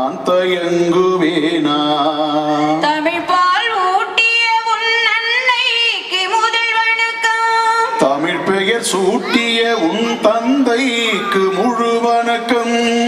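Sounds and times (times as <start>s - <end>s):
man singing into microphone: 0.0s - 3.3s, 7.8s - 13.0s.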